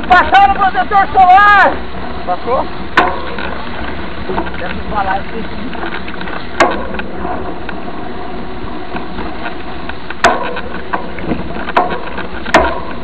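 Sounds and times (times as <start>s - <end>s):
bike tyres rumbling on dirt: 0.0s - 13.0s
bike knocking over bumps: 2.9s - 7.8s, 8.9s - 13.0s.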